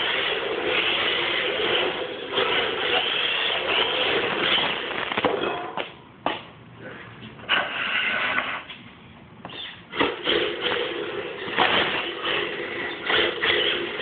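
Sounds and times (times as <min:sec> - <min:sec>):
toy car motor whirring: 0:10.0 - 0:14.0.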